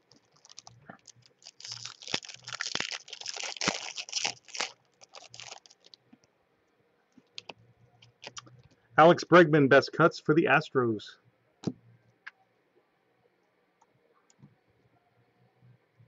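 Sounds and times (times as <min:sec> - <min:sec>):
foil wrapper crinkling: 0:00.1 - 0:06.0, 0:07.3 - 0:08.5.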